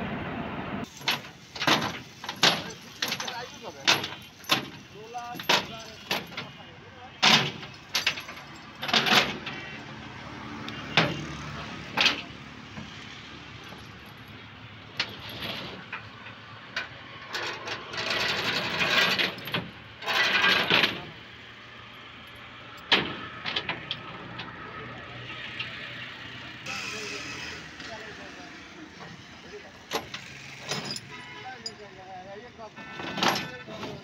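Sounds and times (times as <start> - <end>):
steel chain clanking and rattling: 0.8 - 9.8, 10.9 - 21.3, 29.0 - 32.0, 32.9 - 34.0.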